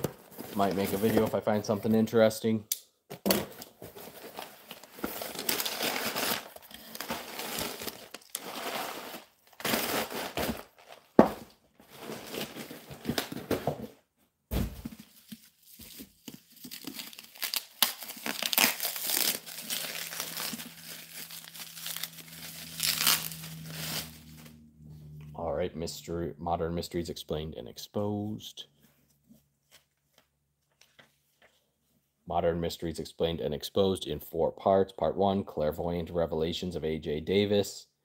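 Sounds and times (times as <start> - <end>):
paper and bubble wrap crumpling: 3.9 - 11.2, 11.9 - 13.2, 15.0 - 24.5.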